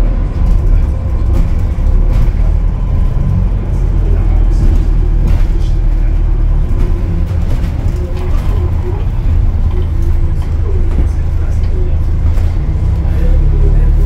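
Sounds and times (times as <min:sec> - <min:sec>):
bus engine rumble: 0:00.0 - 0:14.0.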